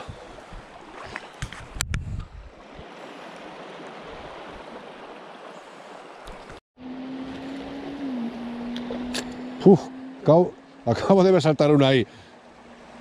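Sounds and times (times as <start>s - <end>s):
low hum: 6.8s - 13.0s.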